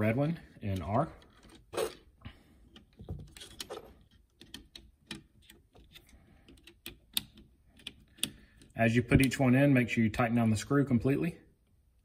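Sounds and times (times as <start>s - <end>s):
screwdriver clicking on plastic terminal: 4.3s - 9.4s.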